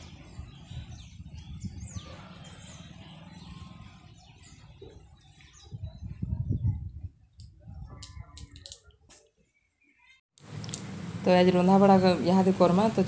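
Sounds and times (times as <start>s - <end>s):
wind rumble on microphone: 0.0s - 8.6s
small birds chirping: 0.0s - 10.2s.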